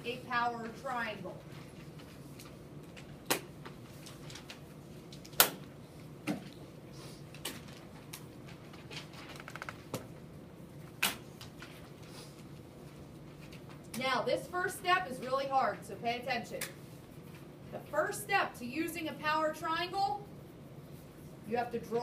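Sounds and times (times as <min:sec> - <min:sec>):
papers being turned over: 0:07.4 - 0:10.0.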